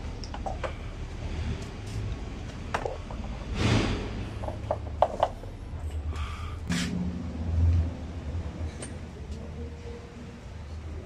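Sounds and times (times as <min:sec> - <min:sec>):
metal scraping: 0:02.8 - 0:04.7.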